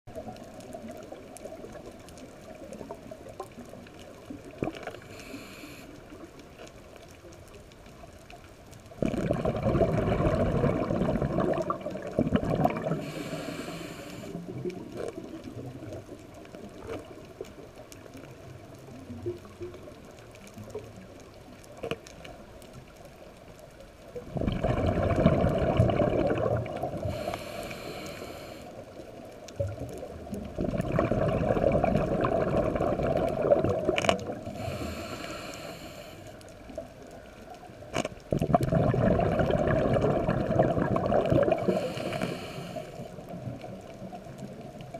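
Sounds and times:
fish crunching on coral clicks: 0:00.1 - 0:44.9
regulator hissing breaths: 0:05.0 - 0:06.2, 0:12.9 - 0:14.6, 0:27.0 - 0:28.9, 0:34.5 - 0:36.4, 0:41.6 - 0:43.2
scuba regulator exhaled bubbles: 0:09.0 - 0:16.0, 0:24.2 - 0:28.7, 0:29.6 - 0:36.1, 0:38.3 - 0:44.2.

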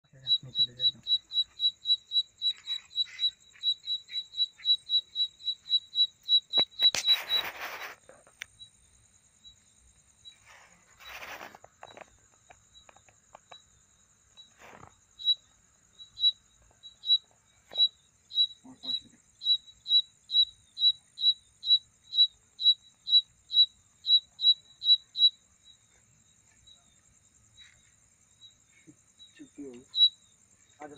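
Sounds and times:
cricket chirping: 0:00.0 - 0:30.9
insects trilling: 0:00.0 - 0:30.9
brief rustles: 0:06.8 - 0:08.4, 0:10.4 - 0:12.1.

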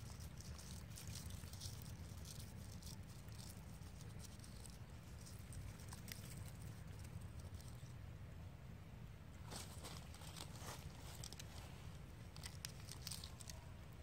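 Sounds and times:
dry leaves crackling and rustling: 0:00.0 - 0:07.9, 0:09.4 - 0:14.0.

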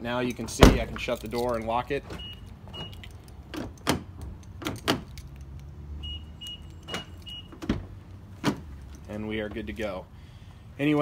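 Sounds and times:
door lock actuators clunking: 0:00.4 - 0:08.7.

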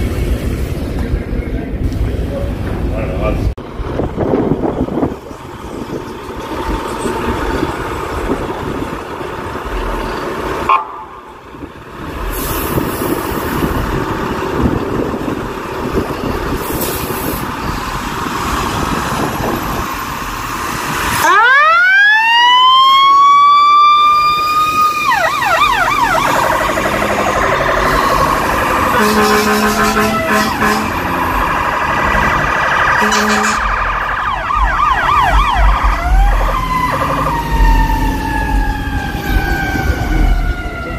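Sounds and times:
fire engine motor running: 0:00.0 - 0:40.9
siren wailing and yelping: 0:21.2 - 0:29.4, 0:32.6 - 0:40.9.

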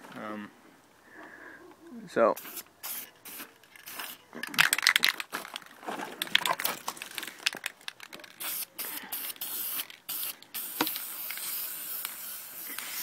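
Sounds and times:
spray paint can hissing: 0:02.4 - 0:04.9, 0:07.9 - 0:13.0
rustling: 0:03.5 - 0:08.6.

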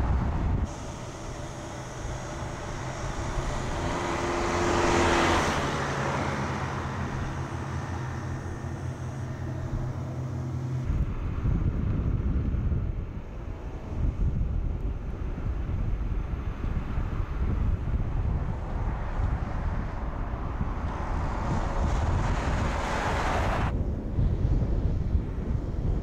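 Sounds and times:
low rumble: 0:00.0 - 0:26.0
car driving past: 0:00.6 - 0:11.0, 0:18.2 - 0:23.7.

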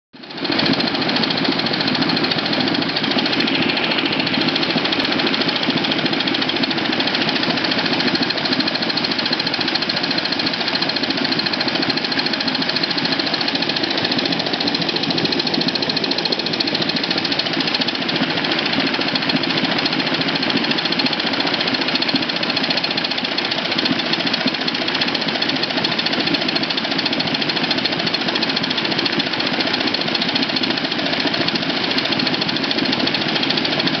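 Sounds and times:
propeller churning water: 0:00.2 - 0:34.0
steam engine running: 0:00.2 - 0:34.0.

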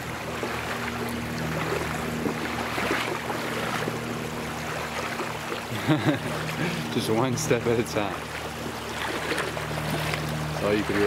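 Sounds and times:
low hum: 0:00.0 - 0:11.0
stream water rushing and splashing: 0:00.0 - 0:11.0.

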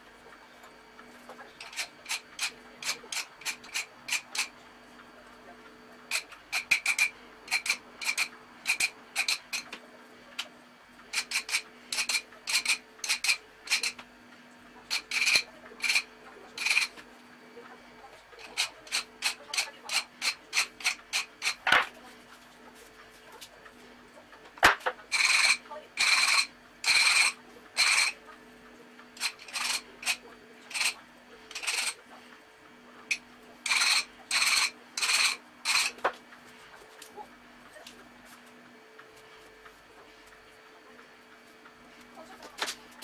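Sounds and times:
hand file scraping metal: 0:01.6 - 0:04.5, 0:06.1 - 0:09.7, 0:11.2 - 0:14.0, 0:14.9 - 0:17.0, 0:25.1 - 0:28.2, 0:29.2 - 0:32.0, 0:33.6 - 0:36.0.

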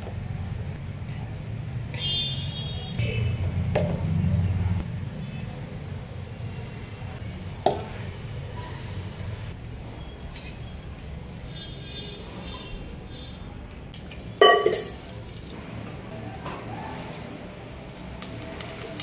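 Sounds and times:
utensil clinking steel jar: 0:14.0 - 0:15.2.

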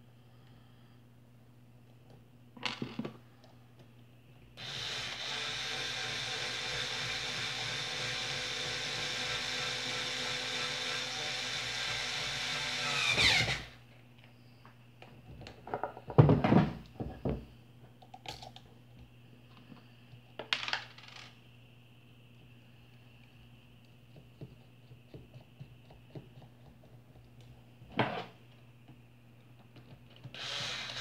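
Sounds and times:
electric tool whirring: 0:04.6 - 0:13.8, 0:30.3 - 0:31.0.

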